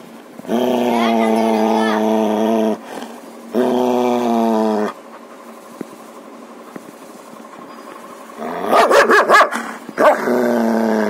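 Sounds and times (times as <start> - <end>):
dog barking angrily: 8.4 - 10.6.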